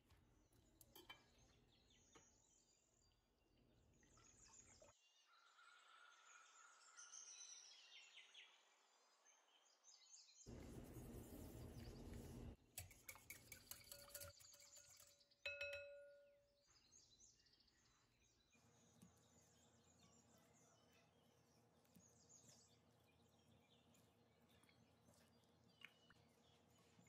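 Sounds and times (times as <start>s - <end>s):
whisk clicking against bowl: 12.8s - 15.0s.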